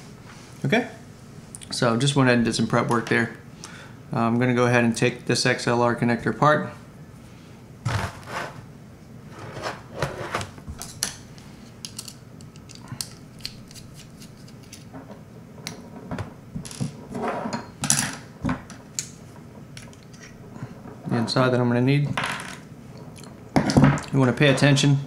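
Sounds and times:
rustling scrapes: 0:07.8 - 0:08.7, 0:09.3 - 0:10.5.

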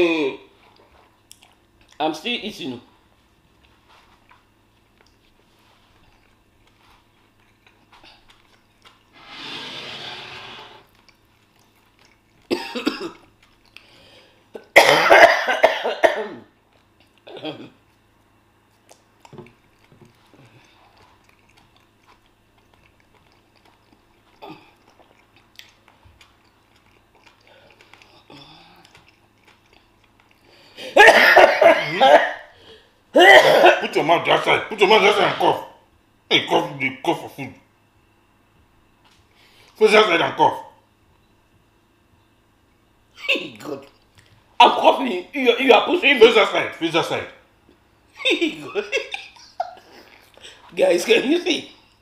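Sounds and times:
woman coughing: 0:12.5 - 0:13.2, 0:14.6 - 0:16.4, 0:30.8 - 0:32.5, 0:33.2 - 0:34.0.

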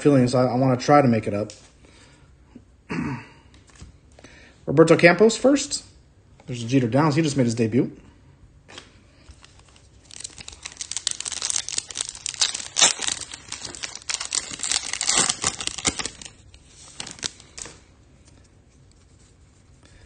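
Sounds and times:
plastic wrapper crinkling: 0:08.7 - 0:18.4.

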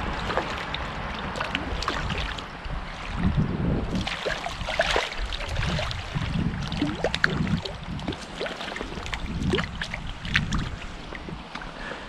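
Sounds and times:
stream water splashing: 0:00.0 - 0:11.9
wind on microphone: 0:00.0 - 0:11.9
water dripping: 0:03.9 - 0:11.6.

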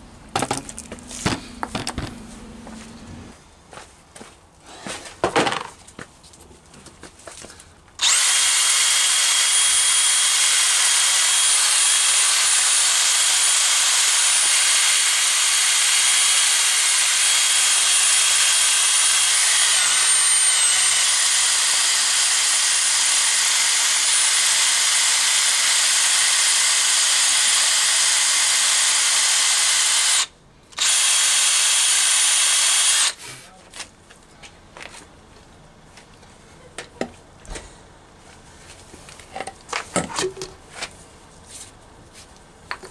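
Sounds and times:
drill wire brush scouring metal: 0:08.0 - 0:33.3.

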